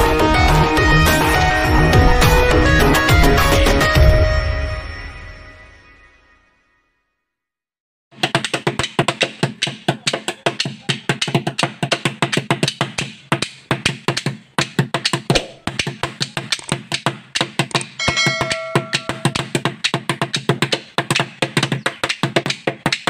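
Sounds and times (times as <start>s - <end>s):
short electronic chime: 18.0s - 19.4s.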